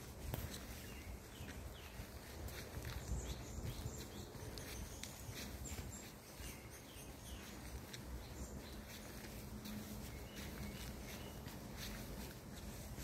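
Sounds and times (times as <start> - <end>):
footsteps on woodland path: 0.0 - 13.0
high bird chirps: 2.8 - 9.3.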